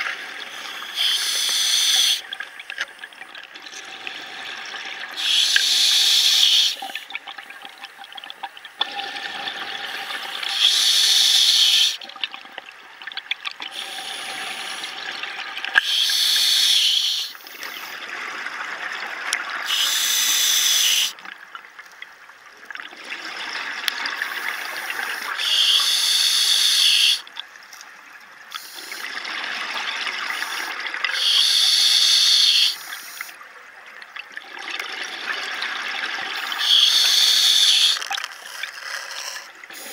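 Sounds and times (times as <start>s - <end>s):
regulator inhalation hiss: 0.5s - 2.2s, 5.2s - 7.0s, 9.9s - 12.0s, 13.8s - 15.0s, 15.8s - 17.9s, 19.6s - 21.2s, 24.2s - 27.2s, 30.3s - 33.4s, 36.4s - 39.9s.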